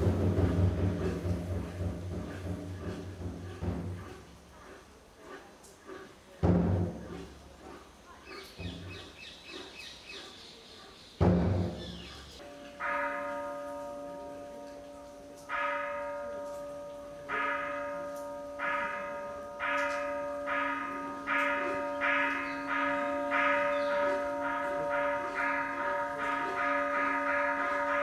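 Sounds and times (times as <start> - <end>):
temple bell strikes ringing: 12.4 - 28.0.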